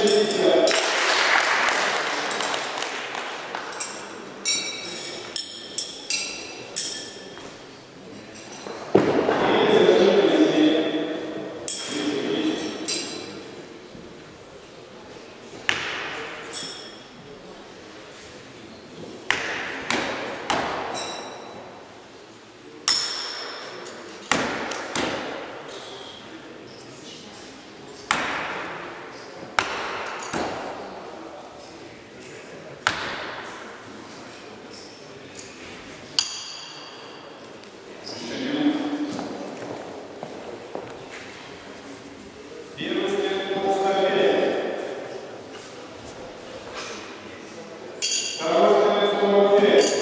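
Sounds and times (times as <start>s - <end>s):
murmur of voices: 0.0s - 50.0s
knives striking wooden targets: 15.7s - 16.9s, 19.3s - 21.6s, 22.9s - 25.5s, 28.1s - 28.8s, 29.6s - 30.9s, 32.8s - 33.6s, 36.2s - 37.0s
knives striking wooden boards: 19.3s - 21.0s, 24.3s - 25.4s, 29.6s - 30.8s
metallic ring of steel blade: 48.0s - 48.4s.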